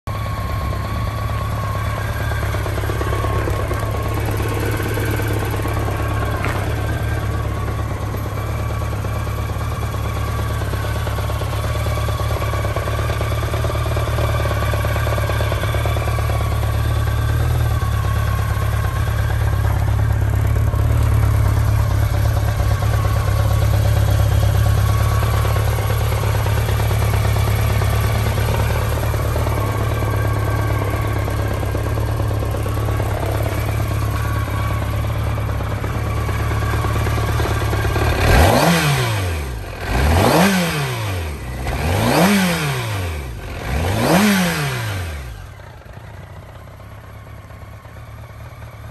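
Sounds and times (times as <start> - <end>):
motorcycle engine idling: 0.0 - 48.9.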